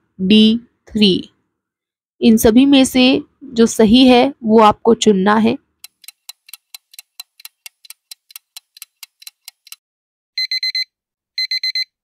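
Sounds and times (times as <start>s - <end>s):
clock ticking: 5.8s - 9.8s
digital alarm beeping: 10.4s - 11.9s.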